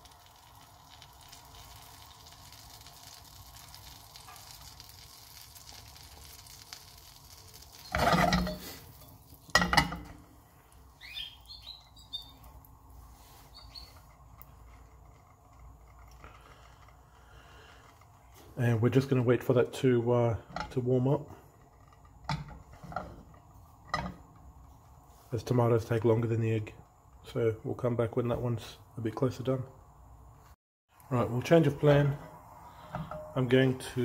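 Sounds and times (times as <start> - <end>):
butter and oil sizzling in pan: 0.0 - 16.5.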